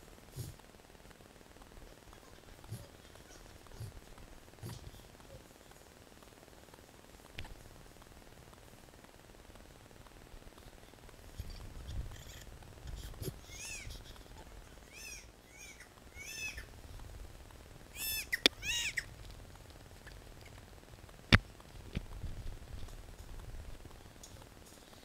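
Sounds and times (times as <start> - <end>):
newborn baby crying: 13.0 - 14.2.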